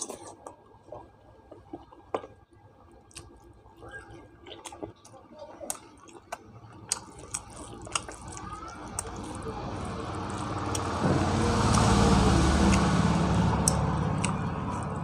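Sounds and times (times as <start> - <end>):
road noise: 8.1 - 15.0
vehicle engine passing by: 9.1 - 15.0.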